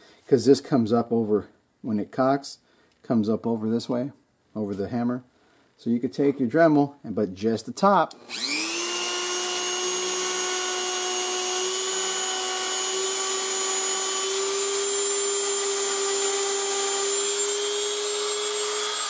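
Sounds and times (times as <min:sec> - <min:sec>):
rotary tool whining: 0:08.2 - 0:19.0.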